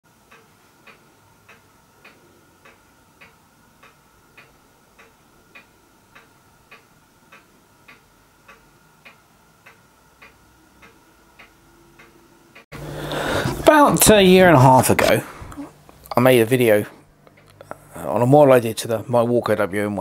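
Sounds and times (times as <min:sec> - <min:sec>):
clock ticking: 0:00.1 - 0:12.7.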